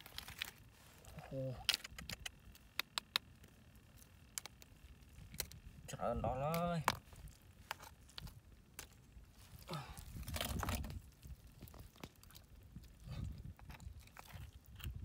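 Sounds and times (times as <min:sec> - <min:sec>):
snail shells clicking: 0:01.6 - 0:05.7.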